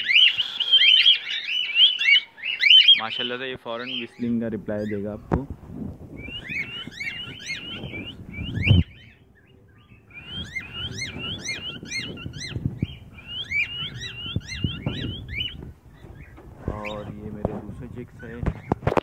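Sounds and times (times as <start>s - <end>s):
cockatiel whistling chirps: 6.2s - 9.2s, 10.1s - 15.6s
loud low thump: 14.7s - 17.7s.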